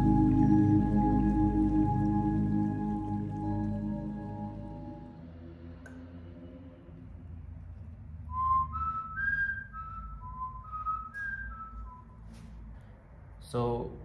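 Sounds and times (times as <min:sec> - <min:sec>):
man whistling slow tune: 0:00.0 - 0:05.1, 0:08.3 - 0:12.4.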